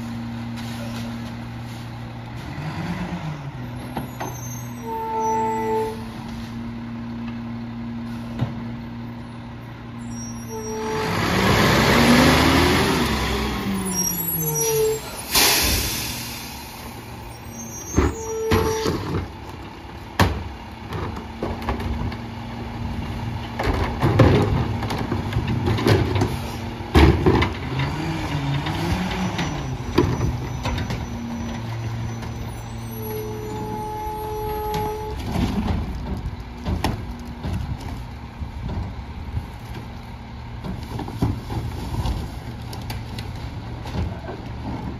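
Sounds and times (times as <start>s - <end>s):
diesel engine idling and revving: 0.0s - 44.9s
air brakes hissing: 13.8s - 19.0s.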